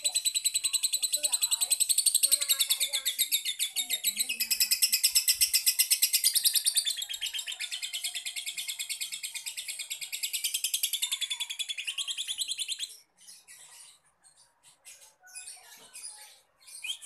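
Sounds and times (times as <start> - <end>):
lovebird rattling chatter: 0.1 - 7.0.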